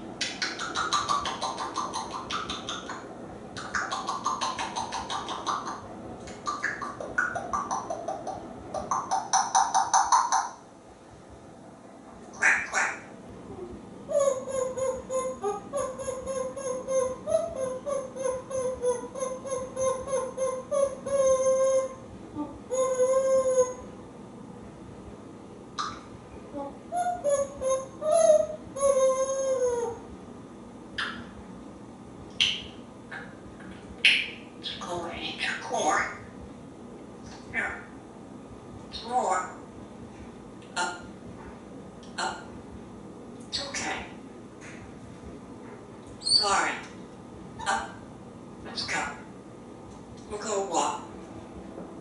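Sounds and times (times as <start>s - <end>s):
parrot calling: 0.2s - 10.6s, 12.3s - 13.1s, 14.1s - 22.1s, 22.7s - 23.9s, 26.9s - 30.0s, 31.0s - 31.3s, 34.0s - 36.2s, 46.2s - 47.0s, 47.6s - 48.0s.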